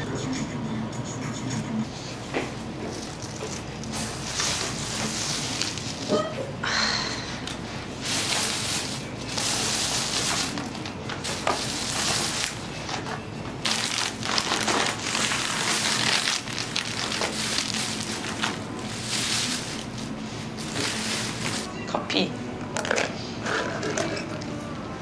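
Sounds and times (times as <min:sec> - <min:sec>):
plastic bag rustling: 0:02.6 - 0:06.3, 0:07.6 - 0:21.8.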